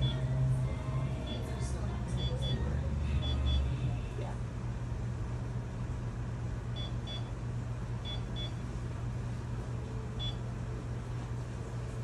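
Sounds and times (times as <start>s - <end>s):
steady low hum: 0.0s - 12.0s
high-pitched electronic beeps: 3.2s - 3.7s.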